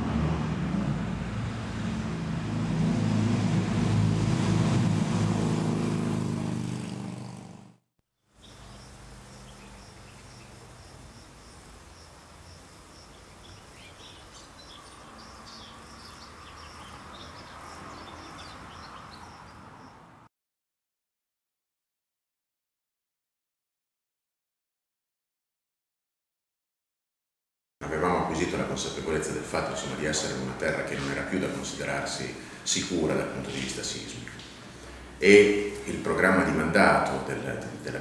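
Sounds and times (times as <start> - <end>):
vehicle engine running: 0.0 - 7.9
bird chirps: 8.4 - 10.6, 12.9 - 20.0
high insect drone: 8.4 - 19.9.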